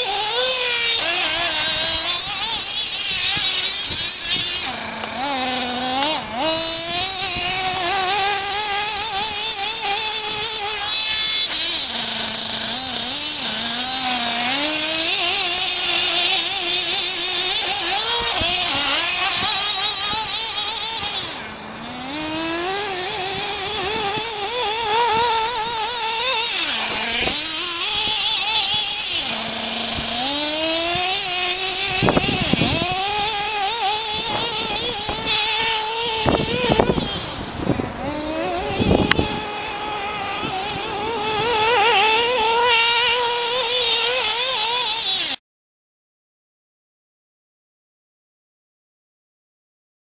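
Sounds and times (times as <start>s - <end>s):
model car engine revving: 0.0s - 45.4s.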